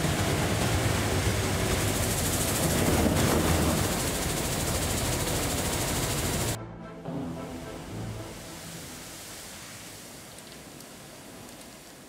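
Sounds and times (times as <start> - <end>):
low machinery hum: 0.0 - 6.6
rushing water: 0.0 - 6.6, 7.2 - 12.0.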